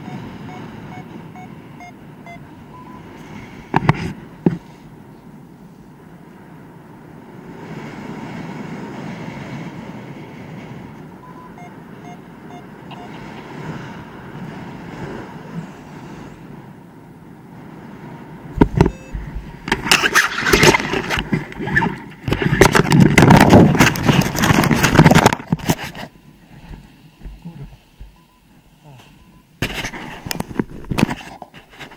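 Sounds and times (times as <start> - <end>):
wind rushing over microphone: 0.0 - 31.9
crackling and knocking on snow: 18.6 - 28.2.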